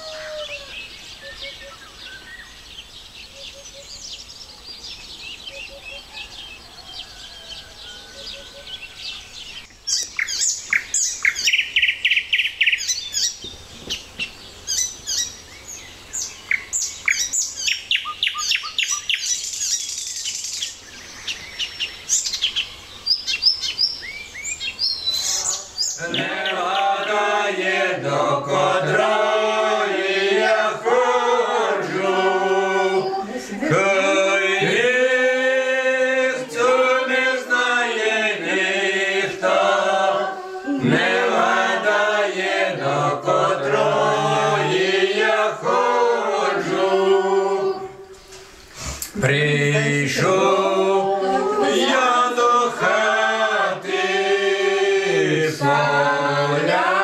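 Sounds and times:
songbirds chirping and singing: 0.0 - 57.0
group of people singing: 25.4 - 57.0.

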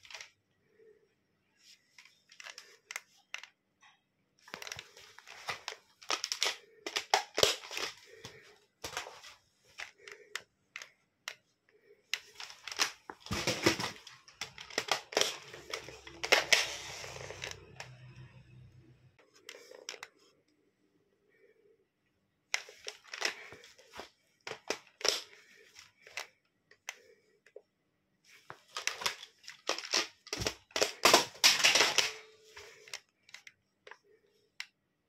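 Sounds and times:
plastic rifle parts clicking: 2.0 - 3.6, 4.5 - 11.4.

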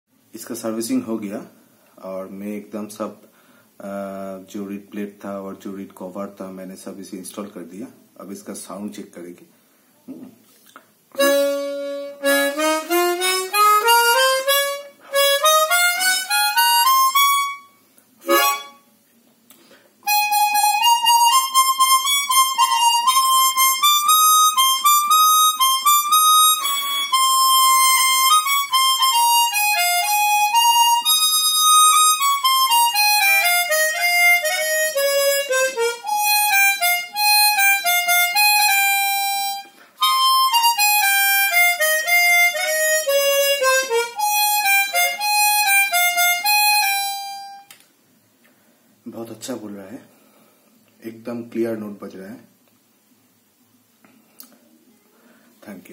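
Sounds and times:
harmonica playing: 11.2 - 18.9, 20.0 - 47.8.

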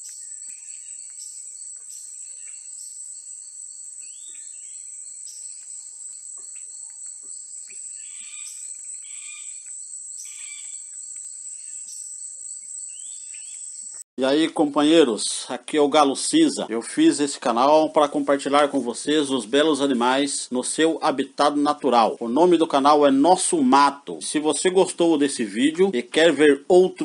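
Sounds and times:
bird calls and chirps: 0.0 - 14.0
high-pitched insect drone: 0.9 - 13.8.

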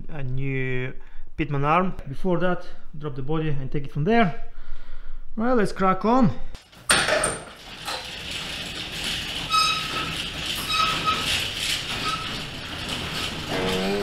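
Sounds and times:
garage door rattling rumble: 6.6 - 14.0
garage door squeals: 6.9 - 14.0.

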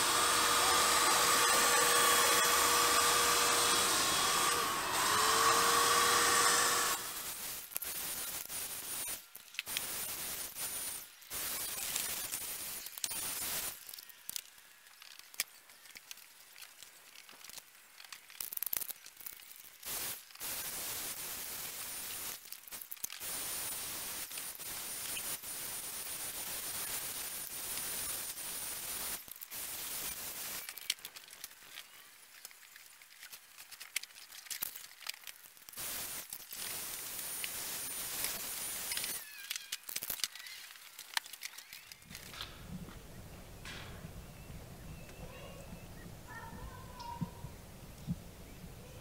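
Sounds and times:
paint sprayer hissing: 0.0 - 13.8, 19.8 - 32.8, 35.7 - 39.5
light clicks and crackles: 11.6 - 20.5, 30.5 - 37.6, 38.2 - 43.0.

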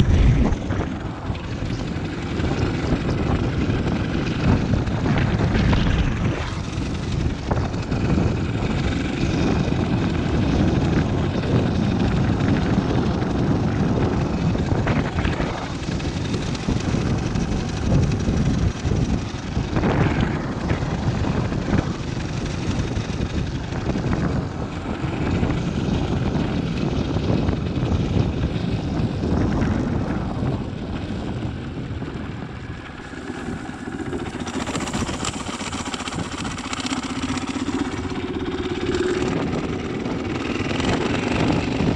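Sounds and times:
motorcycle engine drone: 0.0 - 41.9
wind buffeting microphone: 0.0 - 41.9.

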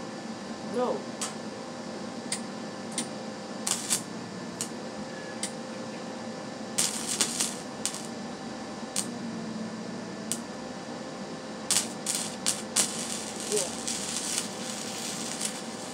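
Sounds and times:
welder hum: 0.0 - 15.9
welding crackles and clicks: 2.3 - 4.8, 6.7 - 8.2, 8.9 - 9.2, 10.3 - 10.5, 11.6 - 15.9.

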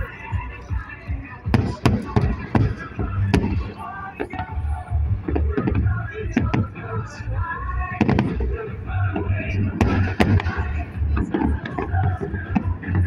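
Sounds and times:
fireworks bursting: 0.0 - 13.0
music playing: 0.0 - 13.0
low rumble: 4.4 - 13.0.

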